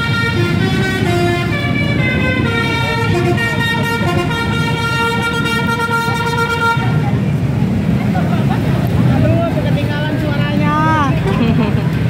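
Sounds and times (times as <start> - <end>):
multi-tone bus air horn: 0.0 - 7.1
road traffic: 0.0 - 12.0.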